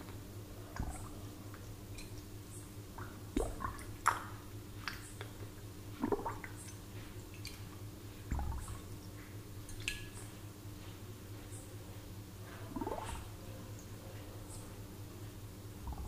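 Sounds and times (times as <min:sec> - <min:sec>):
low steady hum: 0:00.0 - 0:16.0
water plopping and bubbling: 0:00.7 - 0:02.3, 0:02.9 - 0:05.3, 0:05.9 - 0:06.8, 0:08.3 - 0:08.9, 0:12.7 - 0:13.3.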